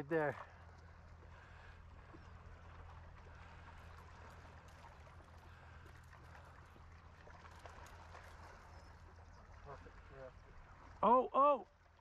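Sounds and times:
low steady hum: 0.0 - 12.0
water lapping against boat hull: 0.0 - 12.0.

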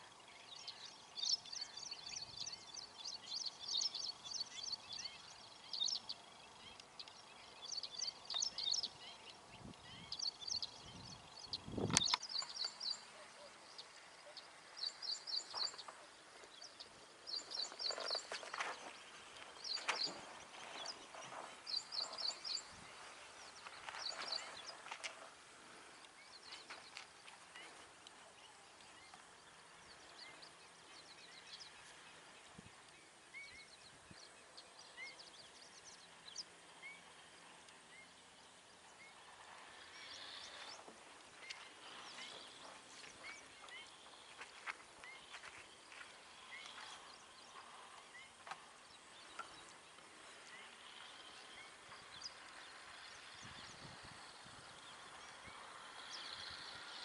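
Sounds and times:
bird chirps: 0.0 - 25.3, 26.0 - 57.0
faint clicks: 11.9 - 12.8.

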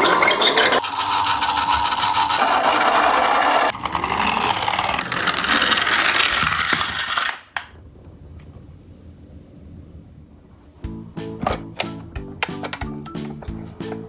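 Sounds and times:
toy trucks rattling on wood: 0.0 - 7.7.

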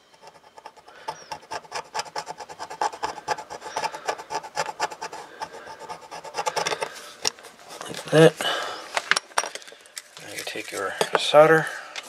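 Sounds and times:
screwdriver scraping circuit board: 0.0 - 8.2.

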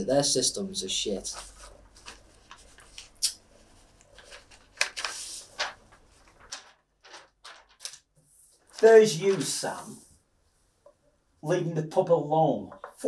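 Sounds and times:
paper rustling: 1.2 - 10.0.

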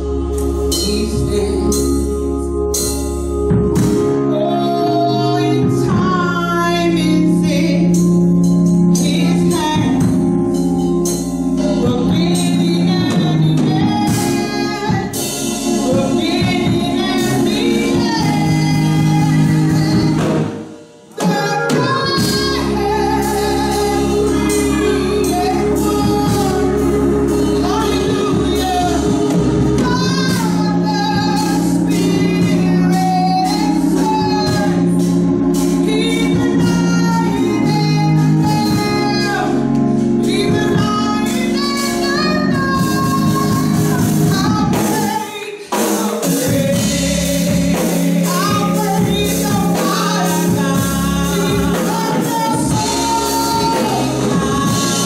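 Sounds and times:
women singing gospel: 0.0 - 10.9, 11.5 - 55.0
sustained instrumental chords: 0.0 - 55.0.

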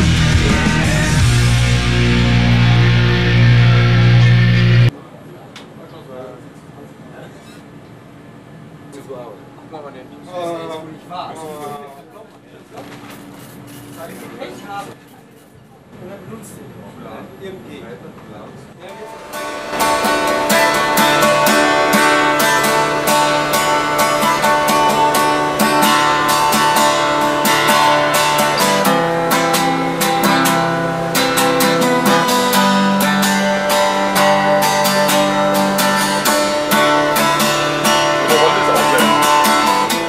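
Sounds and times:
acoustic guitar strumming: 0.0 - 4.9, 18.9 - 40.0.

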